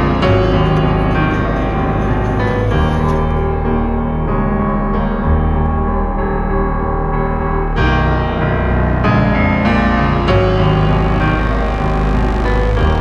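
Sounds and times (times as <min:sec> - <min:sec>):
low bass: 0:00.0 - 0:13.0
piano chords: 0:00.0 - 0:13.0.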